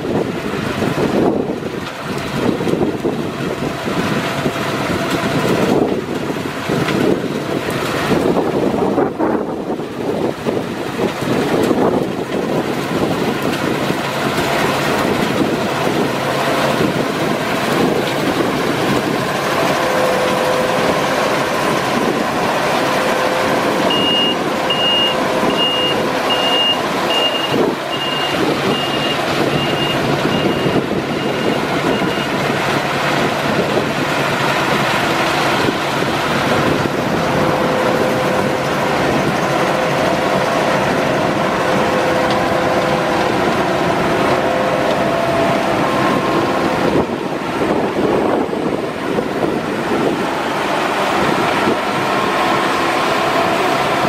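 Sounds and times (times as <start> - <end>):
combine harvester running: 0.0 - 54.0
high warning beeper: 23.9 - 32.4.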